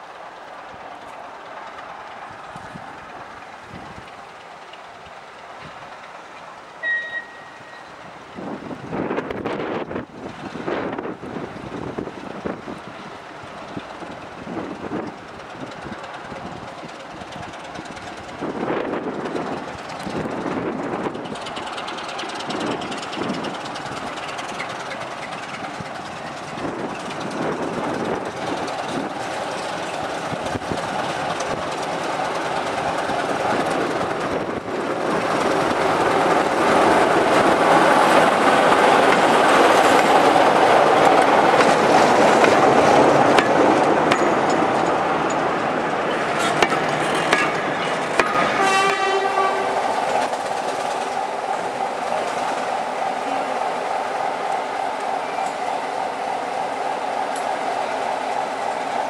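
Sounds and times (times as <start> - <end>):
diesel locomotive engine rumble: 0.0 - 59.0
wheels clicking over rail joints: 0.0 - 59.0
train horn: 6.8 - 8.0, 46.4 - 50.0.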